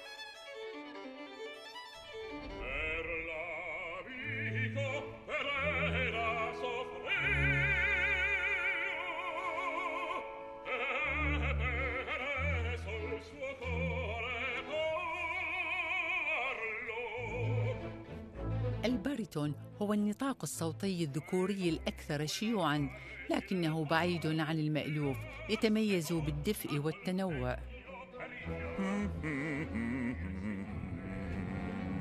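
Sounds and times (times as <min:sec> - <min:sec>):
orchestral accompaniment: 0:00.0 - 0:32.0
man singing opera: 0:02.5 - 0:18.1, 0:22.6 - 0:32.0.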